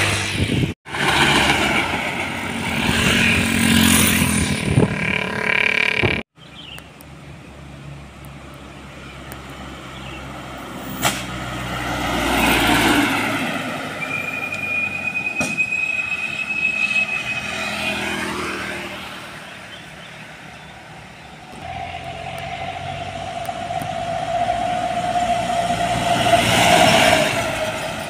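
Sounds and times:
trucks driving past: 0.0 - 28.0
steady tone: 4.4 - 6.2, 21.5 - 26.6
high whine bending downward: 4.4 - 6.3, 21.5 - 26.4.

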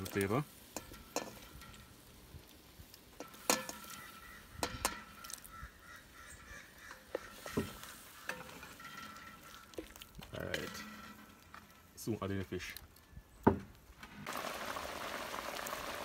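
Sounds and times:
food stirred in sauce: 0.0 - 5.7, 6.6 - 11.0.

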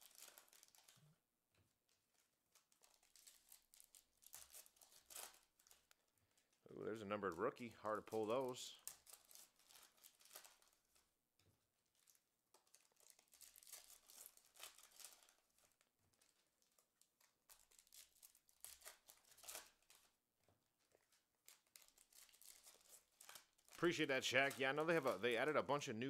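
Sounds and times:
foil wrapper crinkling and tearing: 0.0 - 1.1, 1.9 - 11.1, 11.8 - 20.2, 20.8 - 25.8
cards rustling: 20.8 - 25.8.

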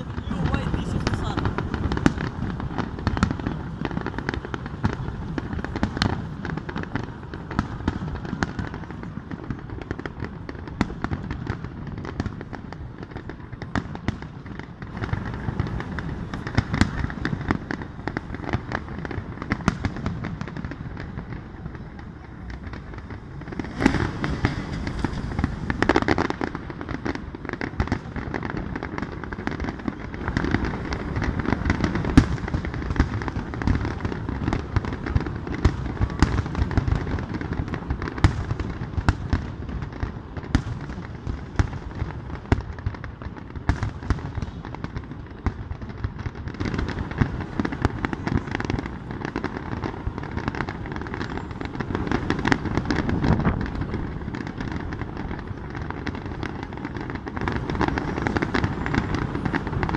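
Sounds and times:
fireworks crackling: 0.0 - 59.9
firework shells bursting: 22.6 - 35.1.

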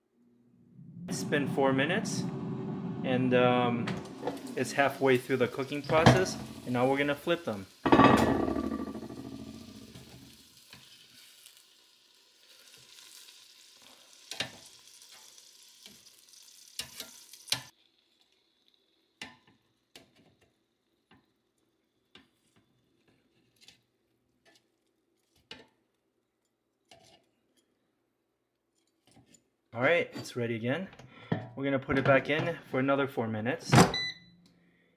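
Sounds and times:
meat sizzling: 4.1 - 20.6.

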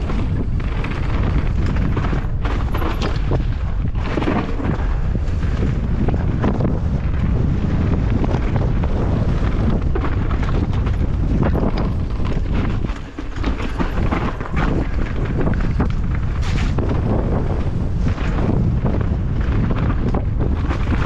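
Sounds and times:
mountain bike clattering on trail: 0.0 - 21.0
wind buffeting microphone: 0.0 - 21.0.

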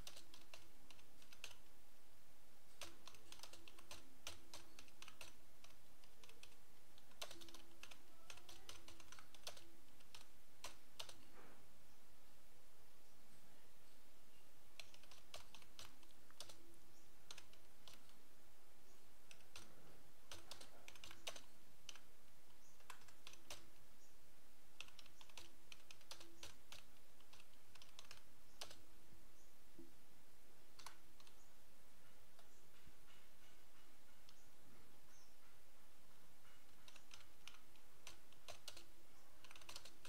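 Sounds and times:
computer keyboard typing: 0.0 - 1.7, 2.7 - 11.3, 14.8 - 18.2, 19.2 - 23.8, 24.7 - 28.9, 30.7 - 31.5, 36.5 - 40.0
steady background hiss: 0.0 - 40.0.

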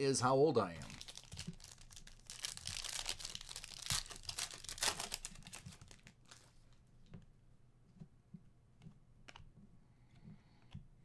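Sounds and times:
foil wrapper tearing and crinkling: 0.9 - 6.5.

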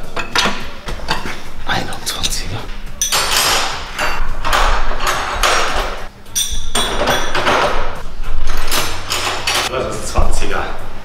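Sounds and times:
wrenches clattering on metal: 0.0 - 1.5, 3.0 - 9.7.

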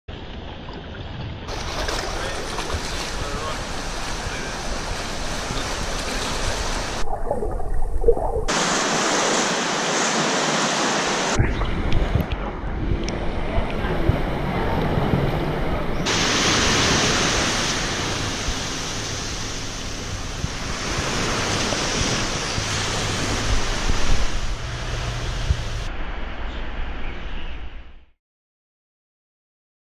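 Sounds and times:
sea waves washing: 1.5 - 27.0
wind noise on microphone: 11.3 - 28.0.

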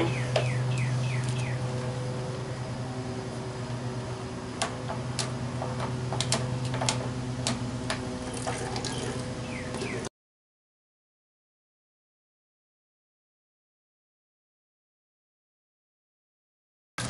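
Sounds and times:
steady low hum: 0.0 - 10.1
water trickling into pitcher: 8.2 - 10.0.

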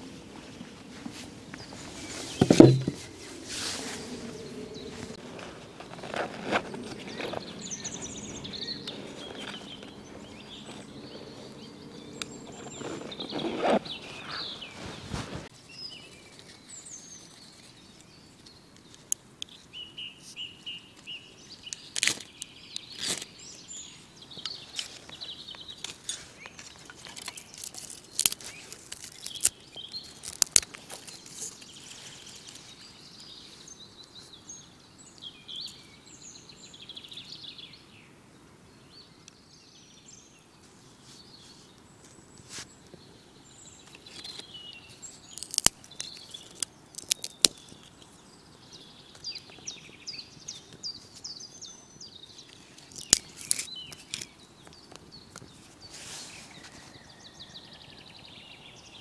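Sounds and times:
small birds chirping: 0.0 - 59.0
knife scraping tinder on bark: 2.0 - 4.0, 12.2 - 14.5, 25.9 - 32.6, 43.9 - 48.0, 52.6 - 54.3
rustling of pouch opening: 12.2 - 15.5, 25.9 - 32.8, 43.9 - 48.0, 52.8 - 54.3.

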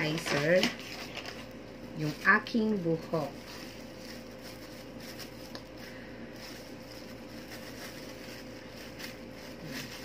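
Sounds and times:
plastic gloves crinkling: 0.0 - 10.0
steady background hum: 0.0 - 10.0.

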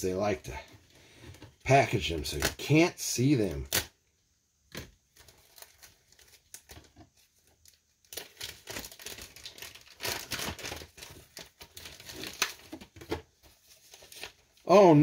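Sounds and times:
packaging crinkling and tearing: 4.7 - 14.6.

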